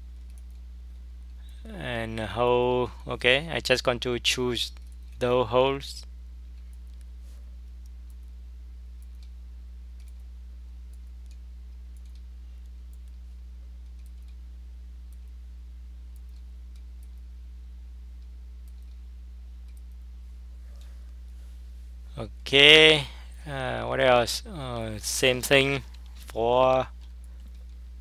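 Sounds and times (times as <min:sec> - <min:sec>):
steady low hum: 0:00.0 - 0:28.0
computer mouse clicking: 0:10.0 - 0:10.3, 0:10.9 - 0:12.3, 0:13.8 - 0:14.4, 0:18.2 - 0:19.0, 0:19.6 - 0:20.0.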